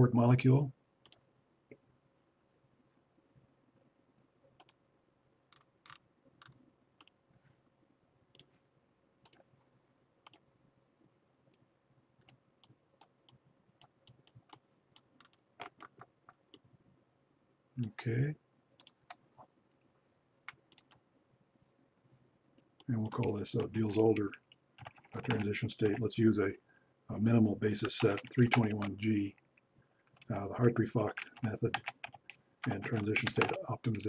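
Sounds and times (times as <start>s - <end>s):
faint computer mouse clicks: 1.0s - 1.8s, 10.2s - 10.4s.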